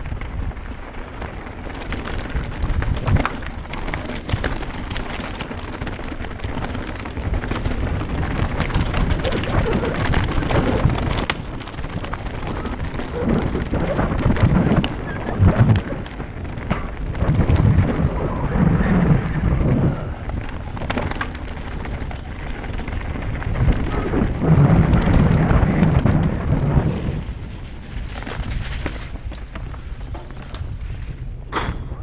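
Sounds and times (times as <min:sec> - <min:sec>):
bike clattering: 0:00.0 - 0:32.0
bike tyres crunching over stones: 0:00.0 - 0:32.0
wind rumble on microphone: 0:00.0 - 0:32.0.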